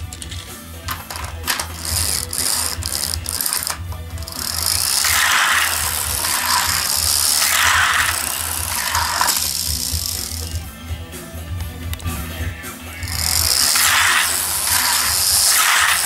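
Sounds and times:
ratcheting clicks of spring winding: 0.0s - 10.6s, 13.1s - 16.0s
toy truck motor whirring: 0.0s - 10.7s, 13.0s - 16.0s.

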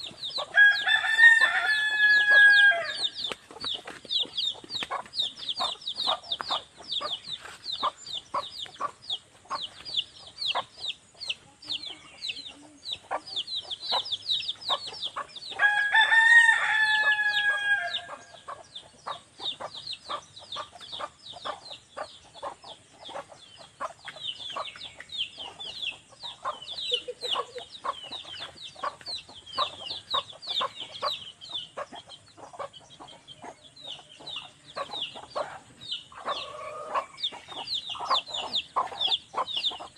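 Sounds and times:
chickens clucking: 0.0s - 39.9s
rooster crowing: 0.5s - 3.1s, 15.6s - 18.3s.

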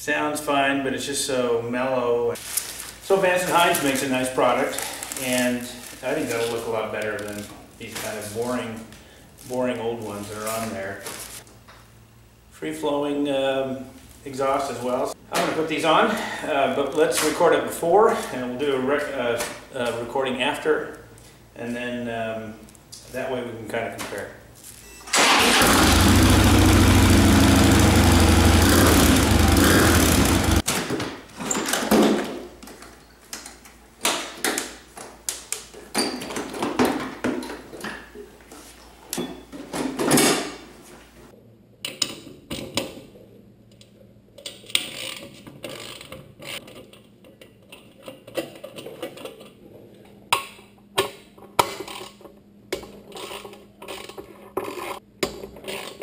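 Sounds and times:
motorcycle engine idling: 25.7s - 30.6s.

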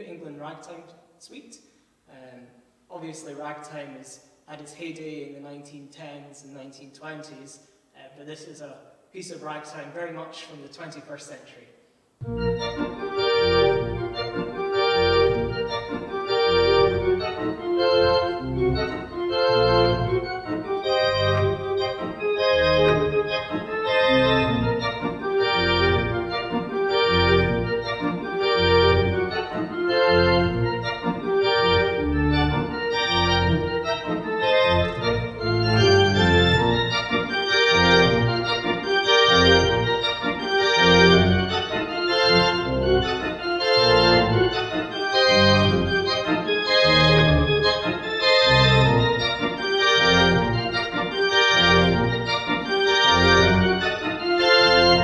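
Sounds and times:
church organ playing ragtime: 12.2s - 55.0s.

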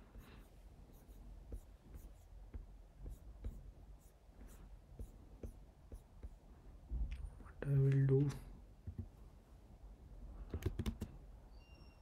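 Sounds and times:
keyboard and mouse clicks: 10.5s - 11.2s.

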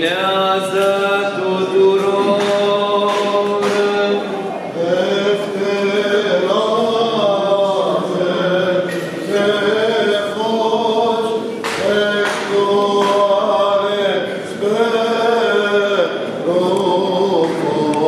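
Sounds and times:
male voices chanting a hymn: 0.0s - 18.0s.

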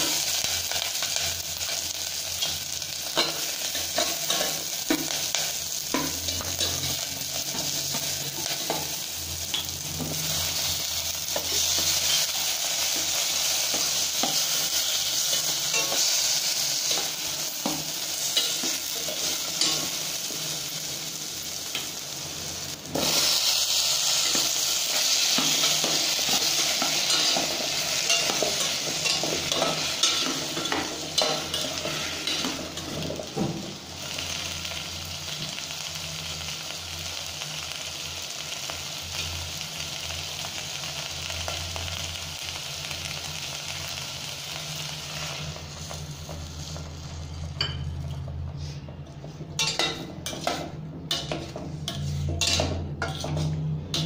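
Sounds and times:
vegetables sizzling in hot oil: 0.0s - 48.7s
spoon scraping metal pot: 49.6s - 54.0s.

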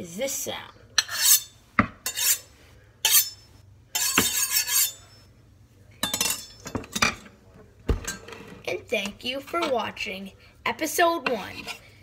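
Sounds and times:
knife scraping on honing steel: 1.0s - 5.2s.

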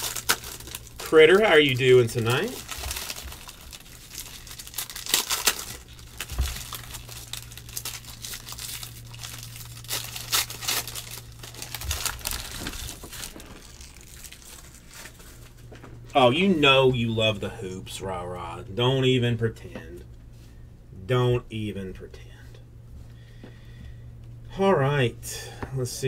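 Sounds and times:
foil wrappers tearing and crinkling: 0.0s - 15.7s.

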